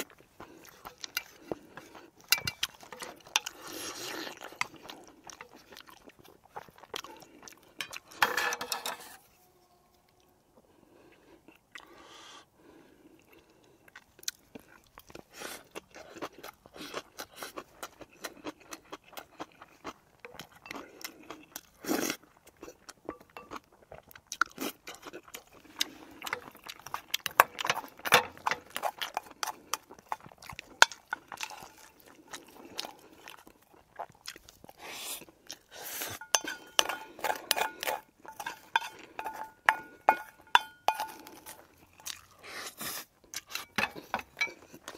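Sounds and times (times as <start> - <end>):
chewing and crunching food: 0.0 - 44.9
utensils clicking against bowls: 2.3 - 3.5.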